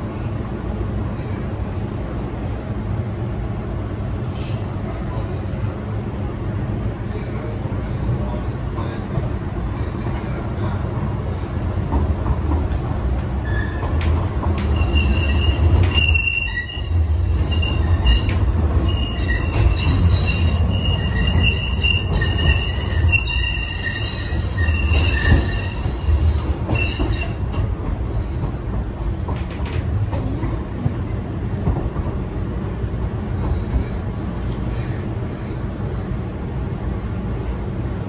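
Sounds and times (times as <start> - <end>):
train car rumble: 0.0 - 38.0
wheels squealing against rails: 13.4 - 27.6, 30.1 - 30.7.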